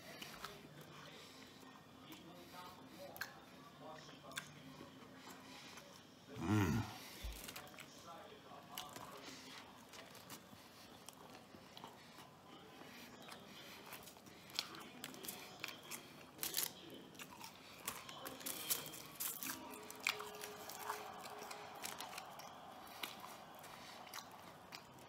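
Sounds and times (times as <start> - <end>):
man chewing food: 0.0 - 25.0.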